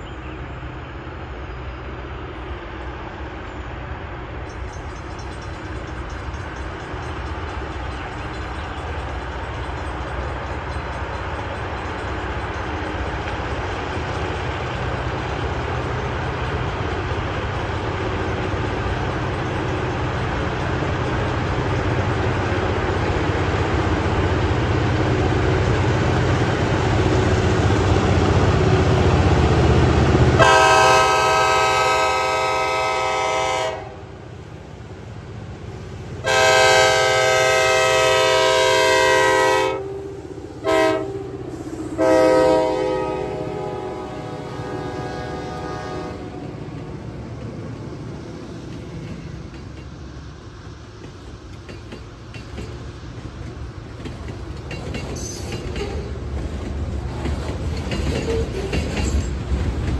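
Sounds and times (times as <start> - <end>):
diesel locomotive rumble: 0.0 - 59.9
train air horn blasts: 30.4 - 34.1, 36.2 - 46.3.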